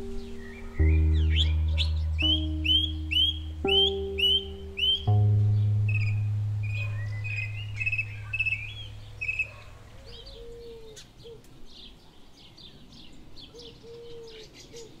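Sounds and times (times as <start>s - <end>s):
low held music note: 0.0s - 9.5s
low drawn-out bird calls: 0.0s - 11.5s
small birds chirping: 0.0s - 15.0s.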